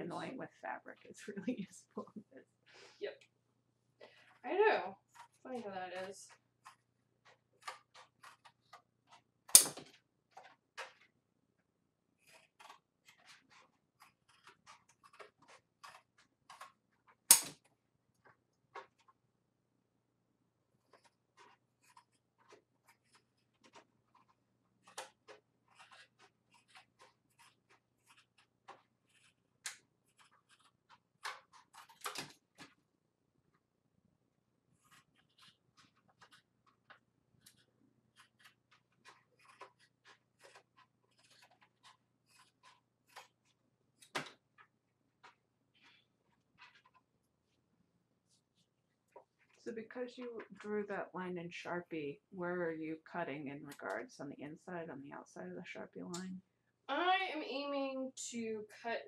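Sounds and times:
shears snipping plastic sheet: 5.1s - 11.1s, 12.2s - 17.6s, 20.9s - 32.8s, 34.8s - 44.4s.

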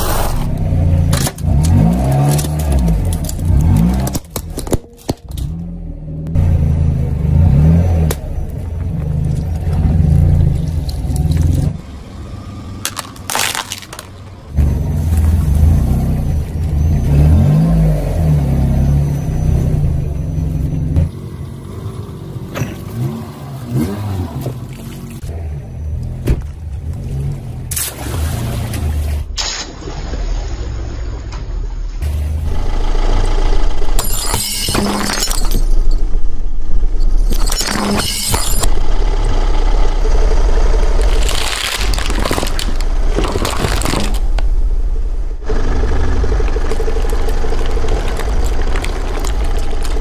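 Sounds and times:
car engine running at low revs: 0.0s - 13.2s, 31.0s - 50.0s
tyre crushing metal grater: 41.0s - 44.3s.

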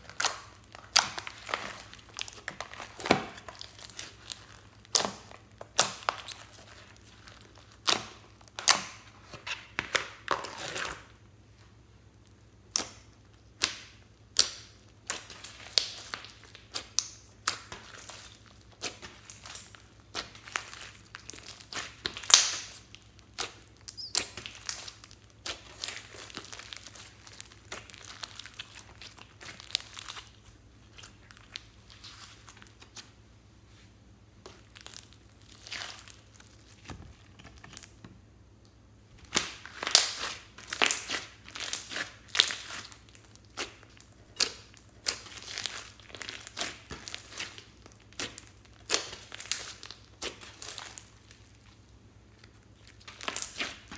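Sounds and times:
slime crackling and squelching: 0.0s - 11.2s, 12.1s - 33.2s, 34.4s - 38.0s, 39.2s - 53.9s.

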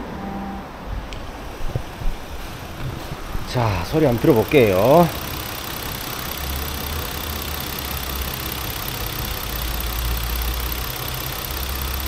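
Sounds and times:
man talking: 3.5s - 5.1s
car engine idling: 3.5s - 12.0s.

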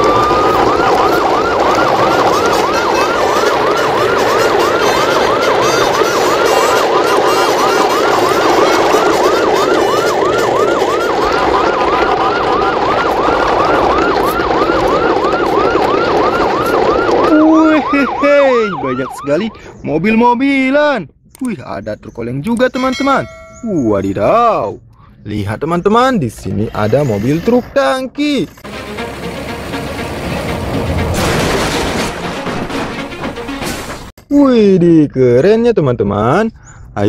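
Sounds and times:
siren yelping: 0.0s - 20.8s, 22.6s - 25.2s.

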